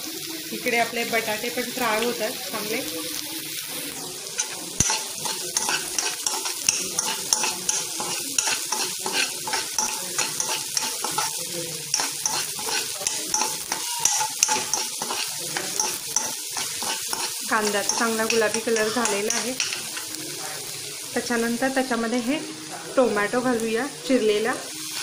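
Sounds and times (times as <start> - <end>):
onion sizzling in hot oil: 0.0 - 25.0
steel spoon scraping a pan: 4.2 - 20.2.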